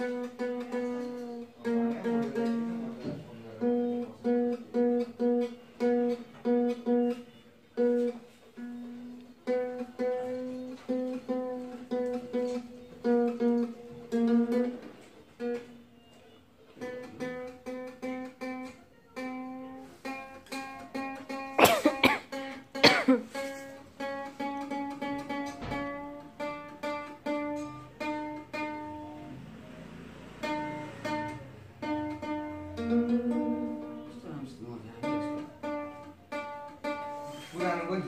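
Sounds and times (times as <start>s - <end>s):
ukulele string plucked: 0.0s - 15.9s, 16.8s - 38.0s
ukulele strum: 0.0s - 38.0s.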